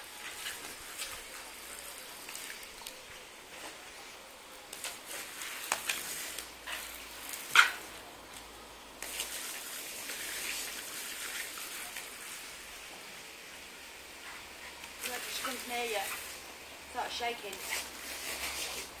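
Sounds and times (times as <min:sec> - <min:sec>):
sprinkler spray hissing: 0:04.7 - 0:07.8, 0:09.0 - 0:12.8, 0:14.2 - 0:16.4.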